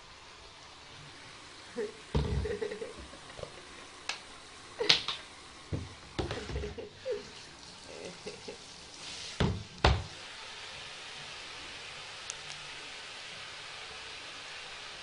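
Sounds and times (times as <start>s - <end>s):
knocks and splashes in bathtub: 2.1s - 3.1s, 5.7s - 6.9s, 9.4s - 10.2s
hand shower spray hissing: 7.9s - 11.2s.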